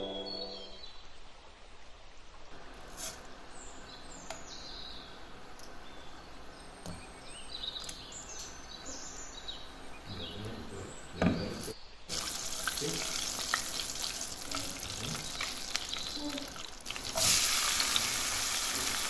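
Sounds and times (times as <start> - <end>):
background music: 0.0 - 0.8
faint steady hiss: 0.0 - 19.0
birds chirping: 2.6 - 19.0.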